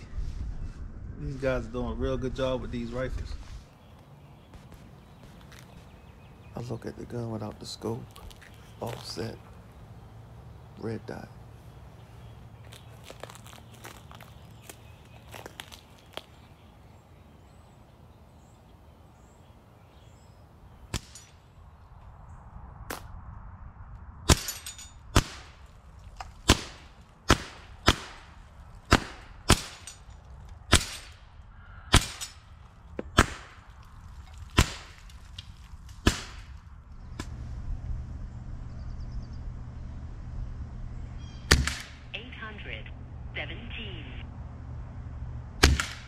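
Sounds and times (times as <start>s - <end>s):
air rifle shots: 24.3s - 25.6s, 26.4s - 30.0s, 30.7s - 31.3s, 31.9s - 33.7s, 34.5s - 35.1s, 36.0s - 36.6s, 41.5s - 42.2s, 45.6s - 46.0s.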